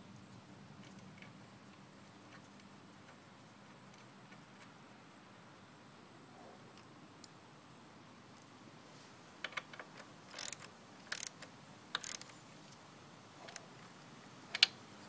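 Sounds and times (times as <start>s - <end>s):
socket ratchet wrench clicking: 10.3s - 11.4s, 12.0s - 12.3s.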